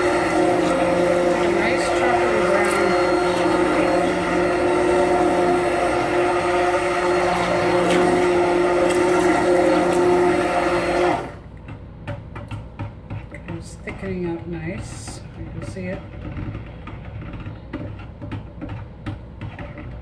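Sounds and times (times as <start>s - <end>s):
stick blender motor running: 0.0s - 11.5s.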